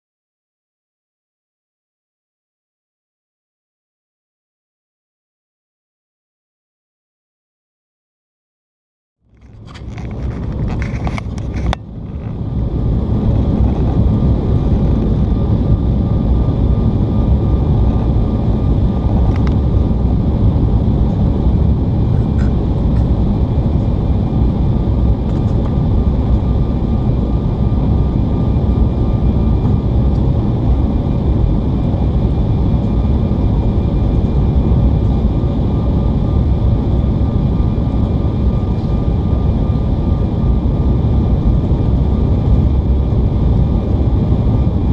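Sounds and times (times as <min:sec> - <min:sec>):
airplane cabin rumble: 0:09.2 - 0:44.9
engine whine: 0:09.2 - 0:44.9.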